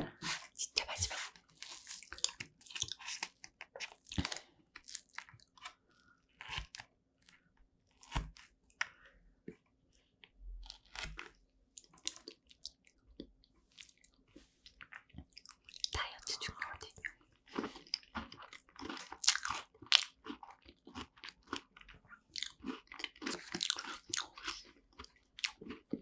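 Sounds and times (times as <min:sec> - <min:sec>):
crunchy bites and chewing: 0:01.5 - 0:09.0, 0:10.5 - 0:12.9, 0:17.0 - 0:26.0.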